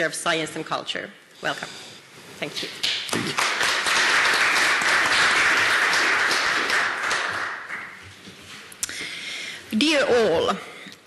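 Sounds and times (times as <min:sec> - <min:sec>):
audience applauding: 0:02.9 - 0:08.0.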